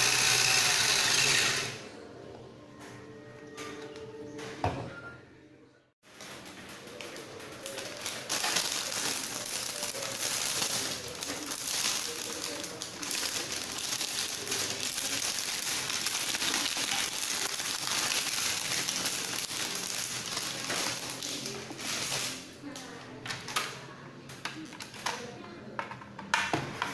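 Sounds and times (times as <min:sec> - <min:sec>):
plastic bag crinkling: 0:06.1 - 0:22.9.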